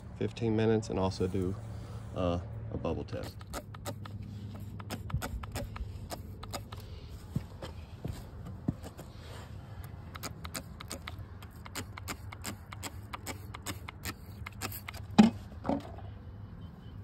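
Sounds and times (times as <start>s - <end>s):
trigger spray bottle spraying: 3.2s - 6.9s, 10.1s - 15.0s.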